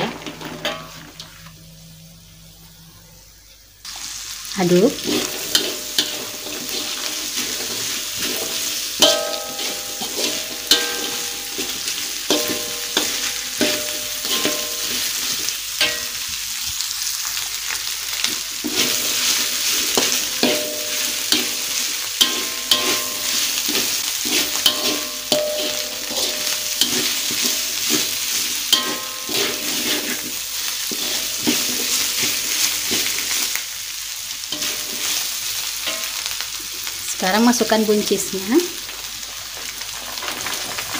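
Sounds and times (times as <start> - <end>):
metal spatula scraping wok: 0.0 - 1.6, 4.7 - 16.4, 18.2 - 33.6, 34.5 - 36.4
wok ringing: 0.0 - 3.2, 4.5 - 17.5, 18.2 - 33.6, 34.4 - 36.5
food sizzling in oil: 0.0 - 40.9.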